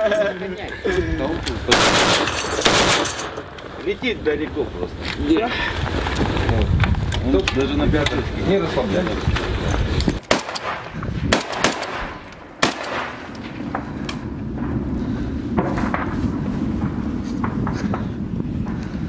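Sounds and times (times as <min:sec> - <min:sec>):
wind buffeting microphone: 0:00.0 - 0:19.0
gunshots: 0:01.7 - 0:03.5, 0:10.2 - 0:13.8.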